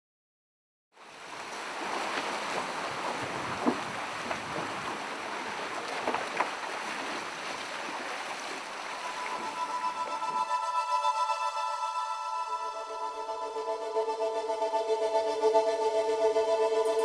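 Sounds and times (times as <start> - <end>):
water splashes: 1.0 - 10.6
water rushing along hulls: 1.0 - 17.0
wind: 1.0 - 17.0.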